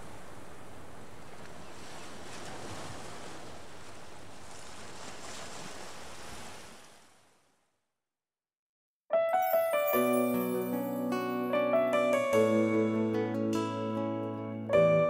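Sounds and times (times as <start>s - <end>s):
ocean surf washing onto beach: 0.0s - 7.2s.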